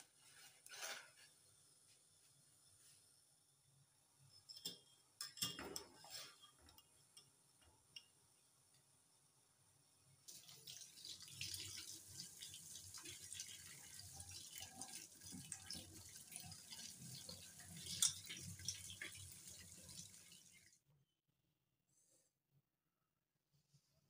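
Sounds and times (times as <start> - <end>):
tap water running and splashing: 10.3 - 20.8.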